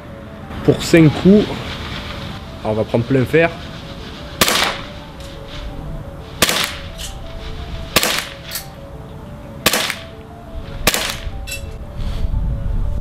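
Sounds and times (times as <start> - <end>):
background music: 0.0 - 13.0
airsoft pistol shots: 4.4 - 4.9, 6.4 - 6.9, 8.0 - 8.5, 9.6 - 10.1, 10.8 - 11.3.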